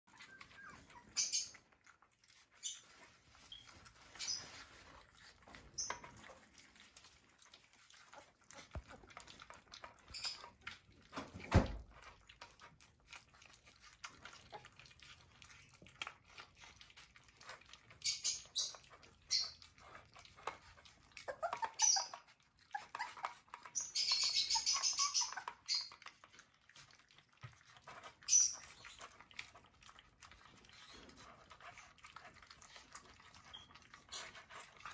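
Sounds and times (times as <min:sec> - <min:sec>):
puppies chewing and smacking: 0:00.0 - 0:34.9
puppy squeaks: 0:00.1 - 0:01.8, 0:02.4 - 0:06.4, 0:09.9 - 0:10.6, 0:20.5 - 0:26.1, 0:28.0 - 0:29.1, 0:32.7 - 0:34.9
thump: 0:11.4 - 0:11.8.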